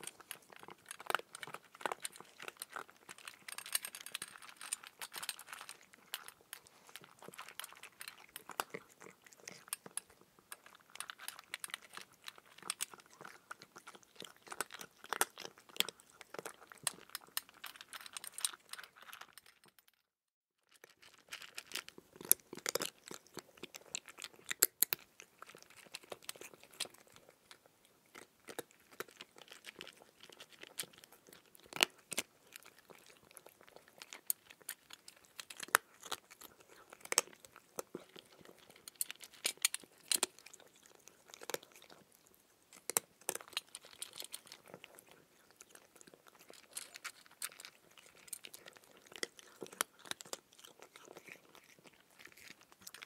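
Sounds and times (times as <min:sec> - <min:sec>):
chewing cucumber crunches: 0:20.8 - 0:53.0.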